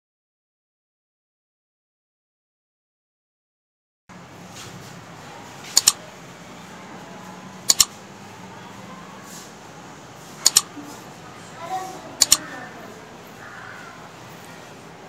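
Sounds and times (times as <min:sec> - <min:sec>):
mouse double click: 0:05.8 - 0:06.0, 0:07.7 - 0:07.9, 0:10.4 - 0:10.7, 0:12.2 - 0:12.4.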